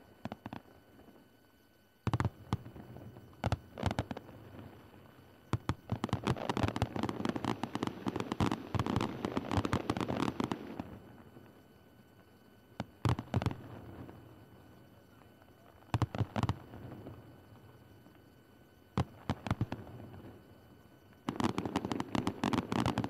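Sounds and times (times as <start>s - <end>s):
fireworks bangs and crackling: 2.1s - 11.5s, 12.8s - 14.3s, 15.1s - 17.4s, 18.9s - 20.5s, 21.2s - 23.0s.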